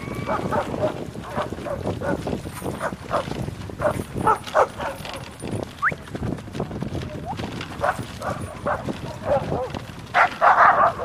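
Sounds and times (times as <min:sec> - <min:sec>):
dogs barking: 0:00.2 - 0:05.3, 0:07.8 - 0:11.0.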